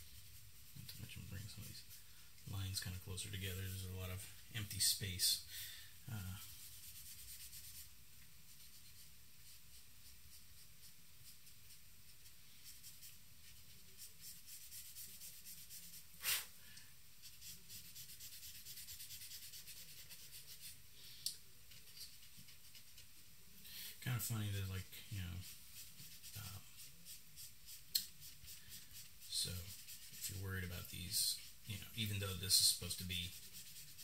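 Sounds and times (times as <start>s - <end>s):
charcoal rubbing on paper: 6.4s - 7.9s, 8.5s - 16.5s, 17.2s - 20.8s, 25.3s - 34.0s.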